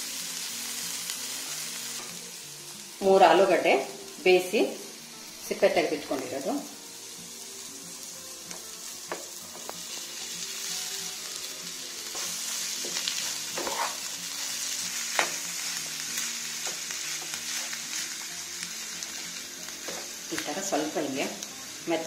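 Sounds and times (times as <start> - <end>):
oil sizzling in a pan: 0.0 - 22.0
spatula scraping and tapping pan: 12.2 - 14.0.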